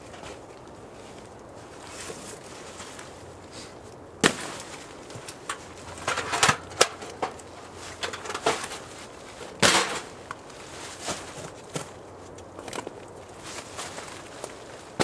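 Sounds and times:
camping gear knocks and clicks: 0:04.2 - 0:13.1.

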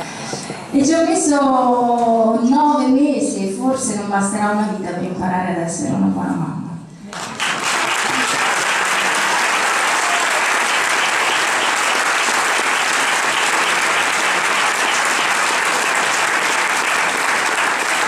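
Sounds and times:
audience applauding: 0:07.1 - 0:18.0.

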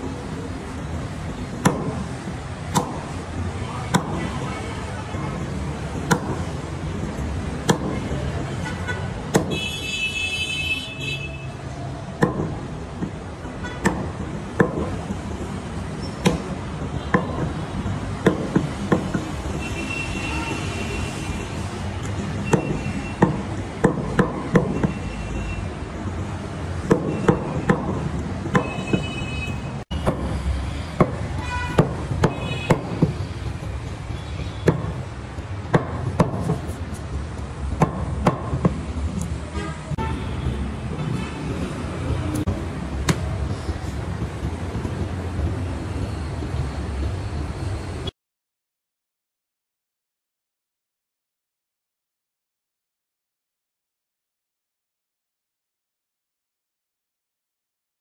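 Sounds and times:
cleaver chopping on wooden block: 0:09.3 - 0:09.6.

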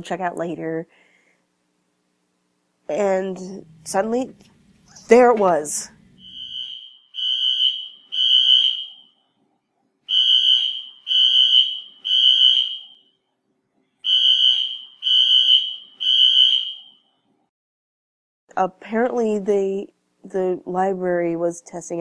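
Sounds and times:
fire alarm beeps: 0:05.9 - 0:09.2, 0:10.1 - 0:13.2, 0:14.0 - 0:17.1.

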